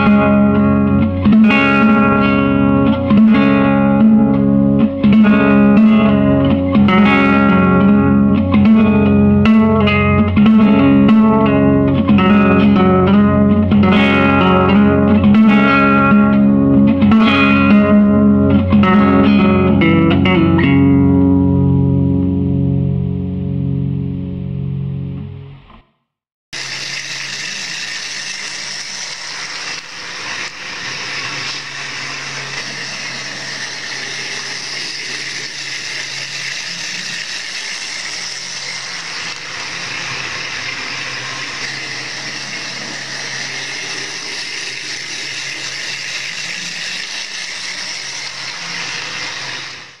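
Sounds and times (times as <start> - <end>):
toy train motor whirring: 0.0 - 2.5, 26.6 - 50.0.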